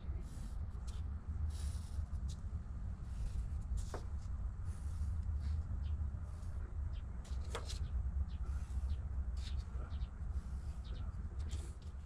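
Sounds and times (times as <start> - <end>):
steady low hum: 0.0 - 12.0
marker scratching: 8.5 - 9.7.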